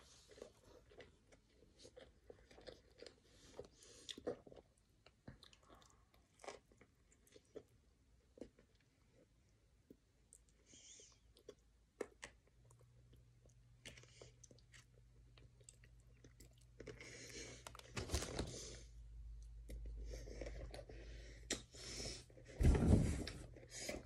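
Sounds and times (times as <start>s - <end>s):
person chewing with soft crunch: 0.0s - 18.0s, 18.6s - 22.5s
paper wrapper rustling: 17.8s - 18.8s
low thump: 22.6s - 23.4s.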